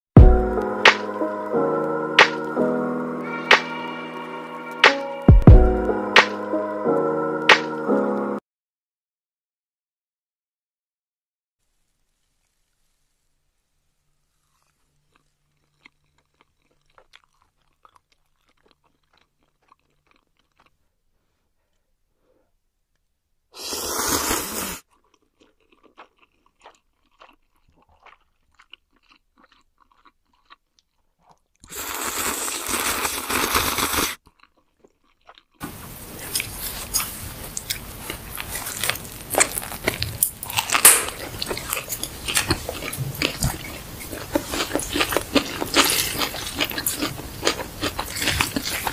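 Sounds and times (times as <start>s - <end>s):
crunchy chewing: 14.2s - 20.8s, 24.1s - 48.9s
slurping noodles: 23.6s - 24.9s, 31.6s - 34.3s, 35.6s - 48.9s
wet mouth clicks of chewing: 25.0s - 31.8s, 36.3s - 48.9s.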